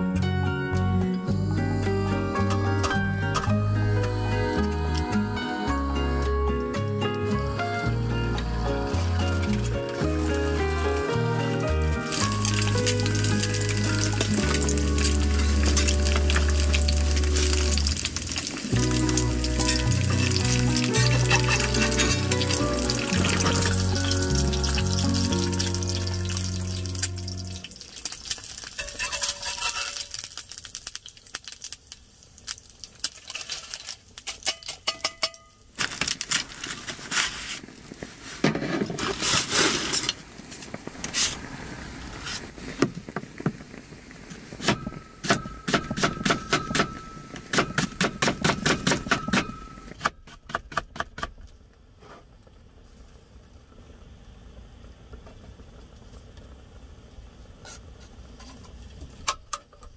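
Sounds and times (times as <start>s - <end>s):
utensils and cookware clattering: 12.2s - 31.0s, 33.0s - 35.6s.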